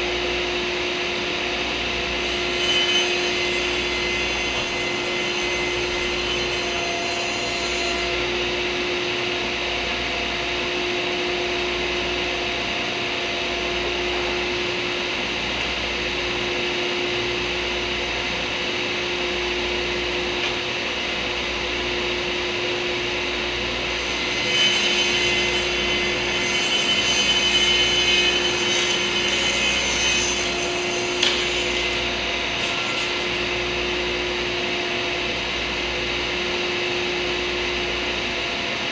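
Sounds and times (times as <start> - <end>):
table saw humming: 0.1 - 38.7
saw blade cutting wood: 2.2 - 8.3, 23.9 - 34.0.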